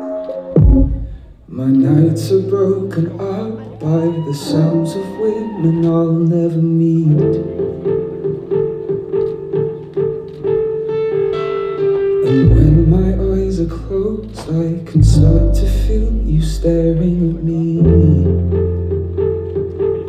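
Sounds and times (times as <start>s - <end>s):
repeating plucked notes: 0.5s - 1.5s
sharp drum hits: 0.6s - 1.4s
heavy deep bass: 0.6s - 1.6s, 12.4s - 19.2s.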